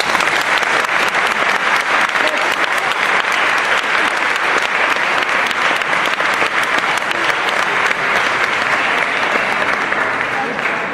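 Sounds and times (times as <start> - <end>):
audience applauding: 0.0 - 10.9.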